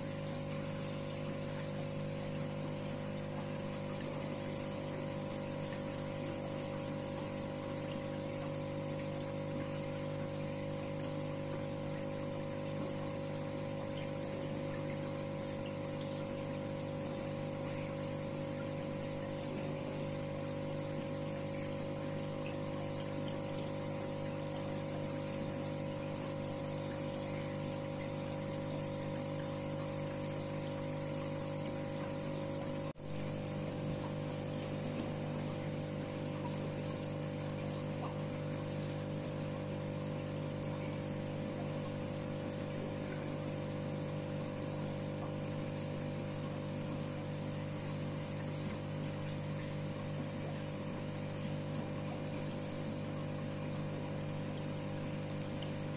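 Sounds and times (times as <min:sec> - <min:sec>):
aquarium pump hum: 0:00.0 - 0:55.9
water running: 0:00.0 - 0:55.9.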